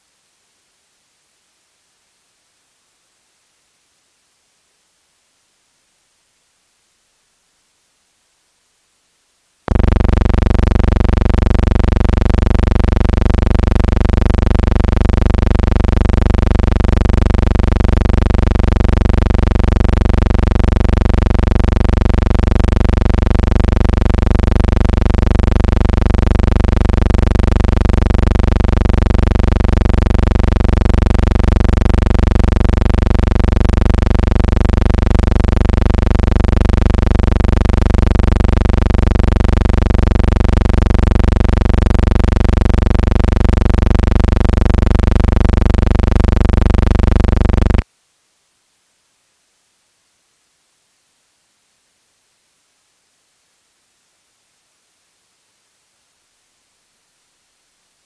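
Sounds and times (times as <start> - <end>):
loud electronic buzz: 9.7 - 47.8.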